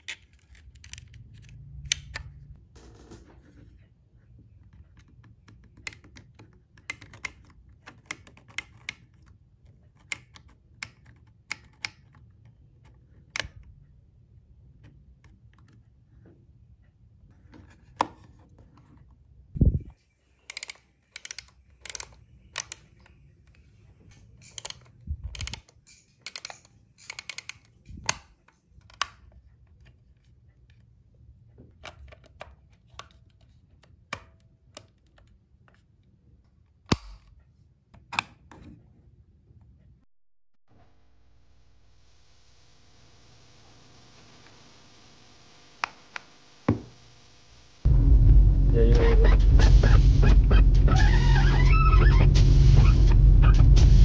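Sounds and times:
low thuds: 0:47.9 - 0:51.0.

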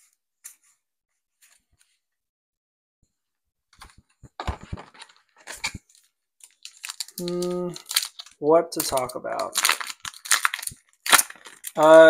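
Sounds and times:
cards shuffling: 0:03.8 - 0:11.8
trading cards flicking and clicking: 0:07.1 - 0:08.2.

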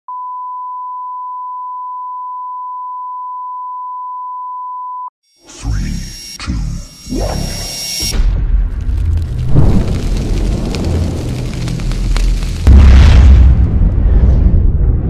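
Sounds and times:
steady test tone beep: 0:00.1 - 0:05.1
sharp high sweep: 0:05.4 - 0:08.4
deep rumbling music intro: 0:08.1 - 0:15.0.

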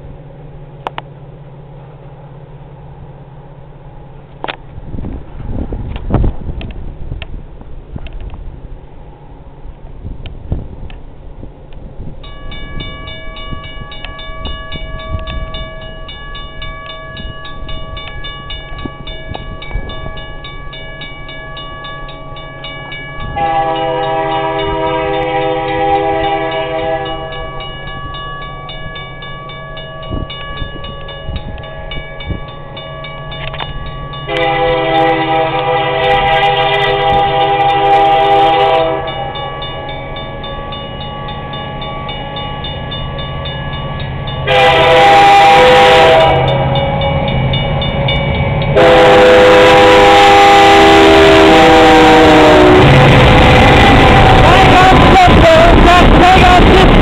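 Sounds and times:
level-crossing warning bell ringing: 0:12.2 - 0:57.0
locomotive air horn blasts: 0:23.4 - 0:27.5, 0:34.3 - 0:39.4, 0:44.4 - 0:47.3, 0:48.7 - 0:57.0.

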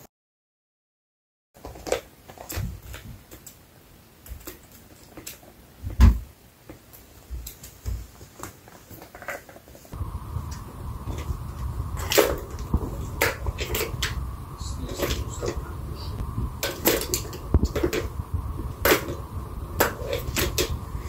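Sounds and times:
steady low hum: 0:09.9 - 0:21.0.

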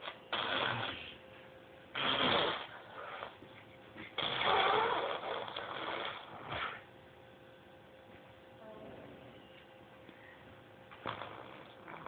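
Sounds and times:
toddler blowing raspberries: 0:04.1 - 0:06.8.

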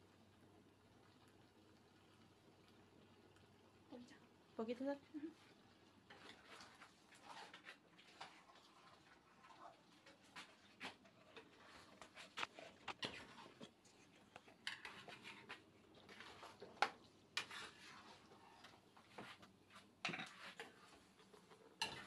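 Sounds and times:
kitchen utensils clicking and scraping: 0:06.1 - 0:08.7, 0:10.0 - 0:19.4, 0:20.0 - 0:22.0.

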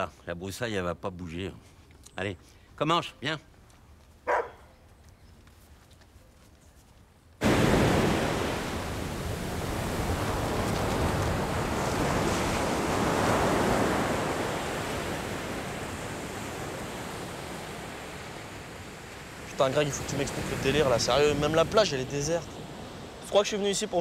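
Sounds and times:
waves breaking on sand: 0:07.4 - 0:24.0.

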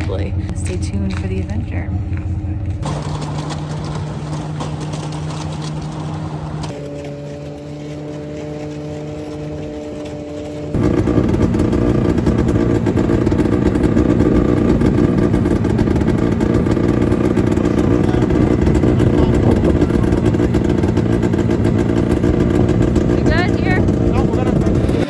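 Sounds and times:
snowmobile engine running: 0:00.0 - 0:25.0.

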